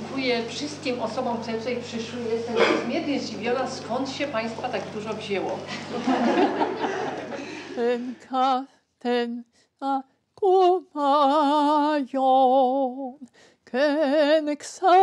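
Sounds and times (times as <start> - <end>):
woman singing unaccompanied: 7.8 - 15.0.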